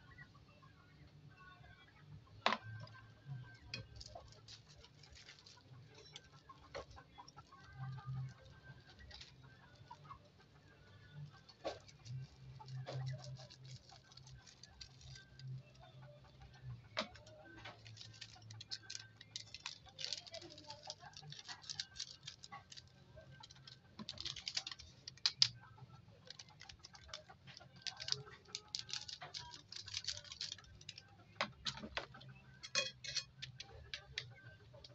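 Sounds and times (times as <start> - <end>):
plastic sachets crinkling: 3.7 - 10.1, 11.2 - 15.8, 17.0 - 25.6, 26.2 - 34.3.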